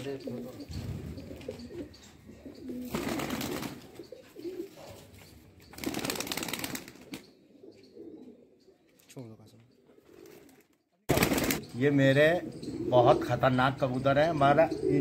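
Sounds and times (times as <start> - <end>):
pigeons cooing: 0.0 - 9.0, 9.8 - 15.0
wings flapping: 2.8 - 3.9, 5.7 - 7.2, 10.2 - 11.6.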